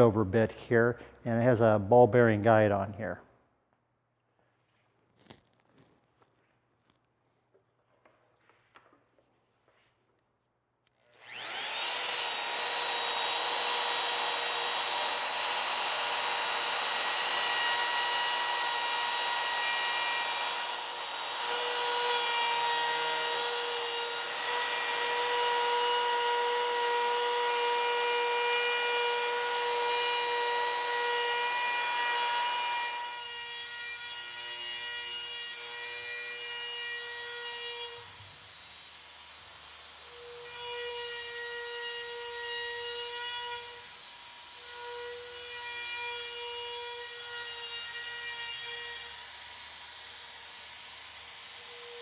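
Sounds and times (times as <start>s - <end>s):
router whining: 10.9s - 52.0s.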